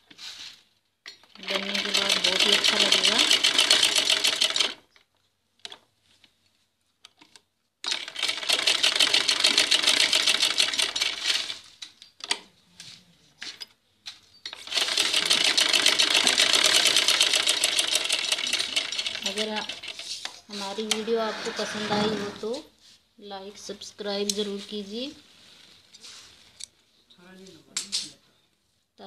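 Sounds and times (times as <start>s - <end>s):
sewing machine clicks: 1.2s - 5.8s, 7.1s - 11.6s, 14.5s - 20.0s
sewing machine stitching: 1.4s - 4.9s, 7.8s - 11.7s, 14.5s - 22.6s.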